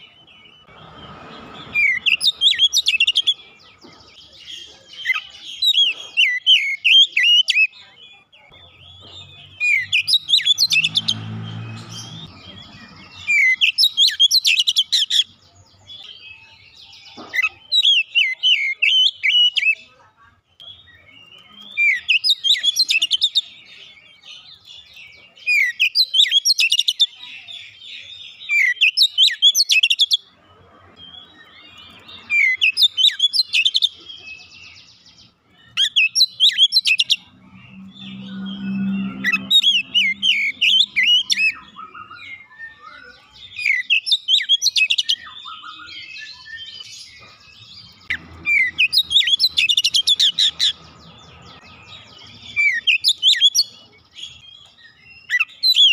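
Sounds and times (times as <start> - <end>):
bird singing whistles and chirps: 31.0 - 55.9.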